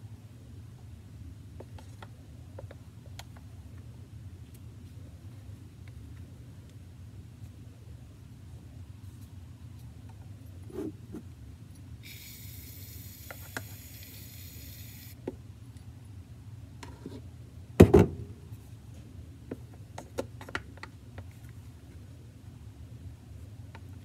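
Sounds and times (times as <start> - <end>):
aerosol can hissing: 12.0 - 15.2
loud thump: 17.8 - 18.2.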